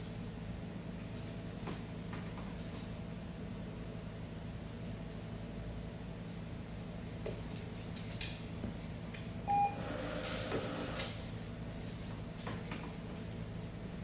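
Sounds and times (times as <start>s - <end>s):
short electronic beep: 9.5s - 9.8s.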